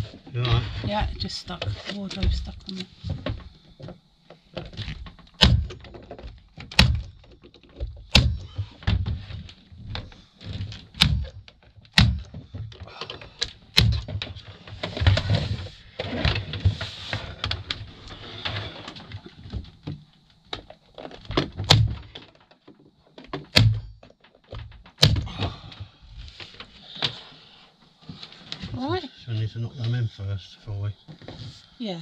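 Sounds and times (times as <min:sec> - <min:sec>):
nail gun firing into wood: 0:05.4 - 0:05.8, 0:06.7 - 0:07.1, 0:08.1 - 0:08.5, 0:11.0 - 0:11.3, 0:11.9 - 0:12.3, 0:23.5 - 0:23.8
scraping and rustling: 0:14.2 - 0:19.8.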